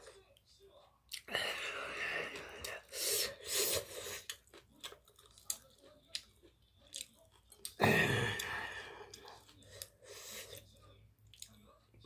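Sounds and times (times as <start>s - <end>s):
wet chewing: 3.4s - 11.6s.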